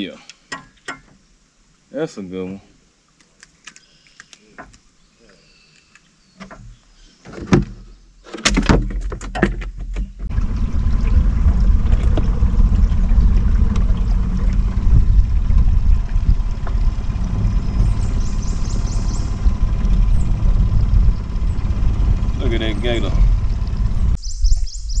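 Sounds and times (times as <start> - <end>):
wind and water noise: 0.0 - 25.0
clicks and rattles: 5.7 - 10.3
boat motor rumbling: 8.6 - 24.2.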